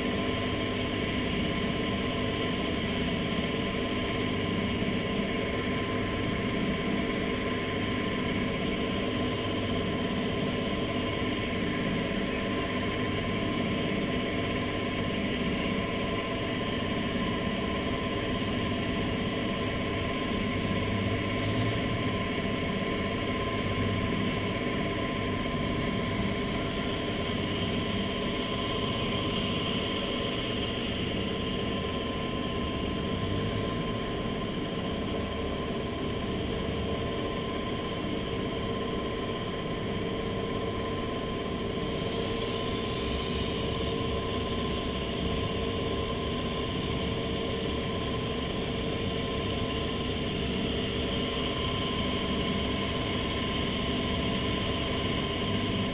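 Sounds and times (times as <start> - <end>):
faint high squeal: 41.9 - 43.2.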